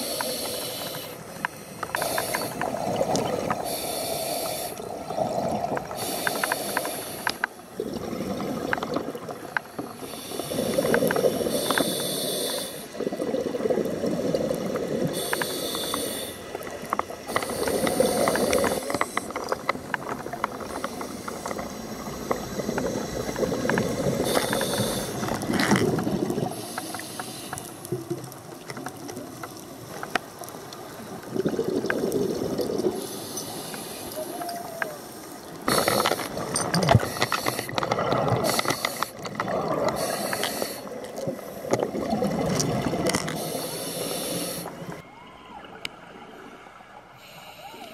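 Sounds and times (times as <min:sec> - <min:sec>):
regulator breathing hiss: 0:00.0 - 0:02.7, 0:03.6 - 0:04.8, 0:05.9 - 0:07.6, 0:09.8 - 0:13.0, 0:15.0 - 0:16.6, 0:17.2 - 0:19.4, 0:24.0 - 0:25.4, 0:26.5 - 0:28.0, 0:33.0 - 0:36.3, 0:38.4 - 0:39.2, 0:40.0 - 0:41.7, 0:43.4 - 0:44.9, 0:47.2 - 0:47.9
gurgling bubble bursts: 0:07.8 - 0:09.4, 0:13.0 - 0:15.2, 0:31.2 - 0:33.0, 0:41.2 - 0:43.2.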